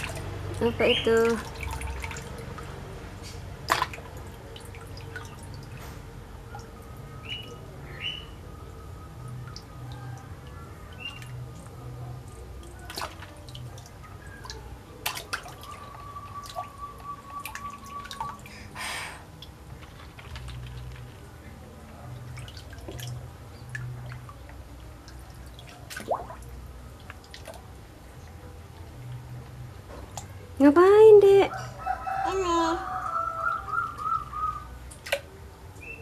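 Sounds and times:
plastic toy moving through water: 19.7 - 21.4.

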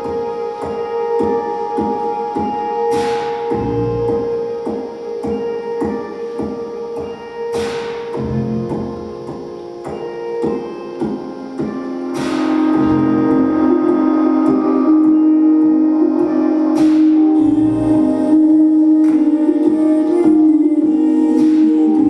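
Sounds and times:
sustained held chords: 0.0 - 22.0
bright cymbal crashes: 12.0 - 15.4.

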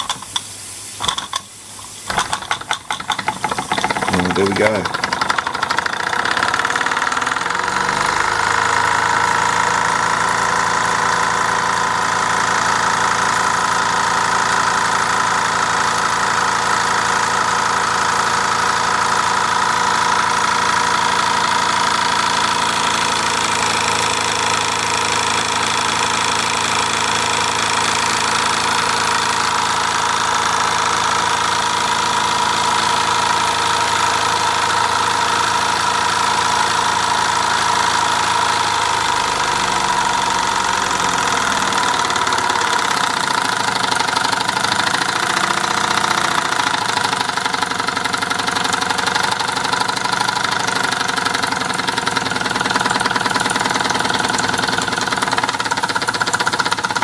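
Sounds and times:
toy steam engine chuffing: 2.1 - 11.2, 20.7 - 57.0.

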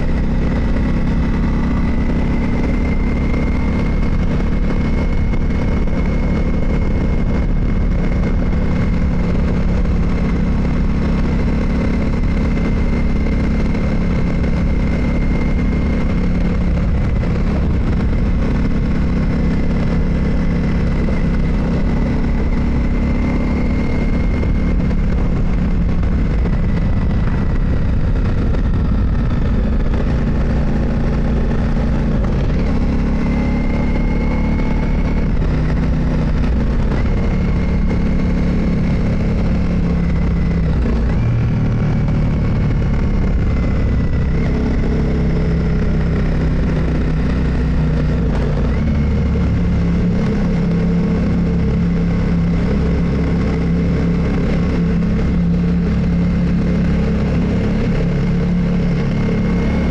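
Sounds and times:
steady low rush: 0.0 - 33.1
motorcycle engine running: 0.0 - 59.9.

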